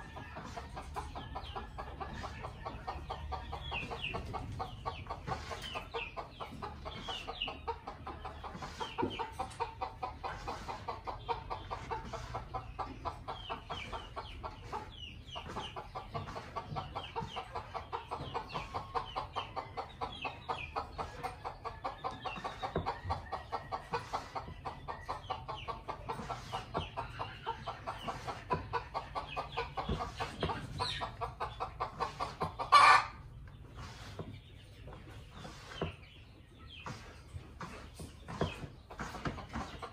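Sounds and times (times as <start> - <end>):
junglefowl clucking: 15.4 - 33.2.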